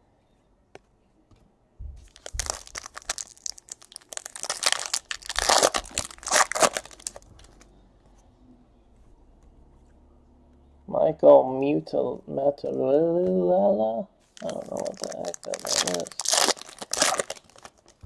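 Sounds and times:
foil wrapper crackling: 2.1s - 7.6s, 14.4s - 18.0s.

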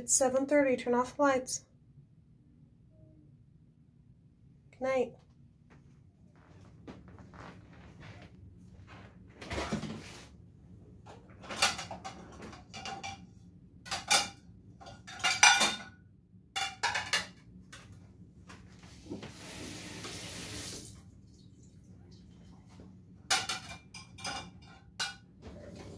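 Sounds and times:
plates clattering: 11.4s - 13.2s, 13.9s - 16.0s, 16.6s - 17.4s, 23.3s - 25.3s
kitchen tap running: 19.2s - 21.6s.

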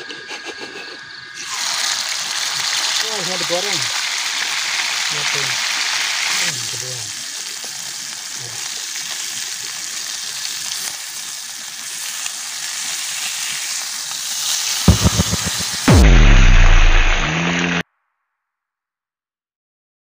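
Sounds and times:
food sizzling in a frying pan: 1.3s - 16.0s
music with deep tones: 14.9s - 17.8s.

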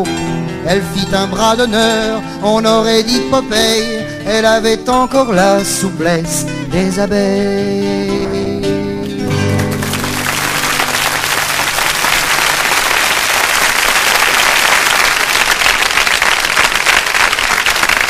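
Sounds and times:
audience applause: 9.6s - 18.0s.

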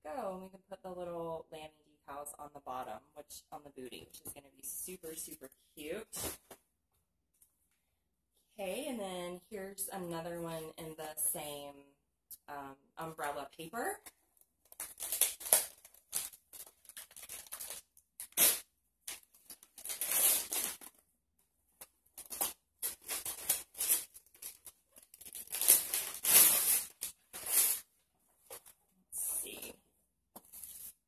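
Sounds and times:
wrapping paper tearing: 14.7s - 21.0s, 22.2s - 27.9s.

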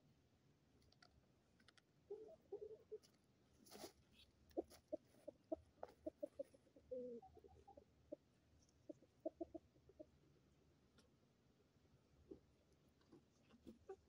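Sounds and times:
hens clucking: 2.0s - 3.1s, 4.5s - 10.2s, 13.2s - 14.0s.

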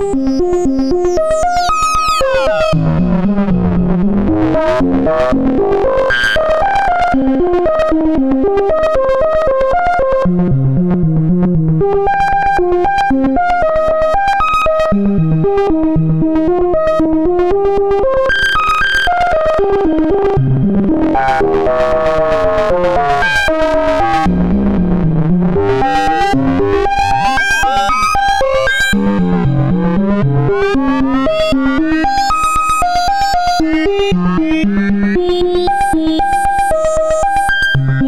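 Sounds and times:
synthesizer arpeggio: 0.0s - 38.0s
swooping gliding synth tones: 19.4s - 32.3s.

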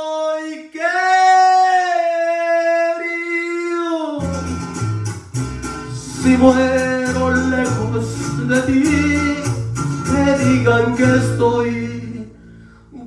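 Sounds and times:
man singing a long high note: 0.0s - 4.4s
mariachi backing track: 4.2s - 13.0s.

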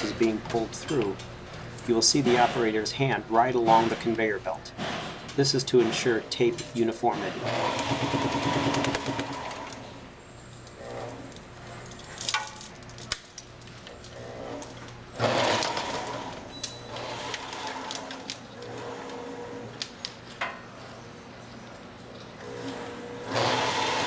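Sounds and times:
machine clatter: 4.8s - 9.9s
machine motor humming: 7.1s - 11.4s, 22.3s - 24.0s.

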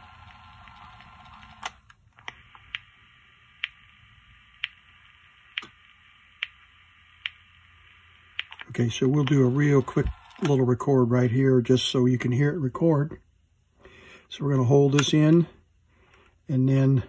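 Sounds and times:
tape playback hiss: 0.0s - 17.0s
tape recorder clicks: 8.3s - 10.6s.

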